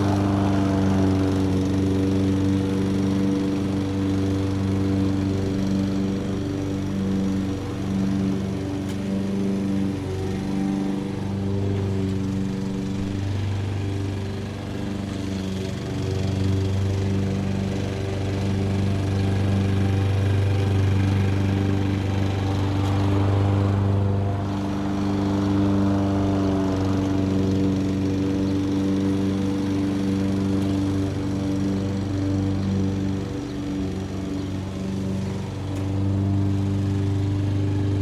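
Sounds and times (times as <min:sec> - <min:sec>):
distant lawn mower engine: 0:00.0 - 0:38.0.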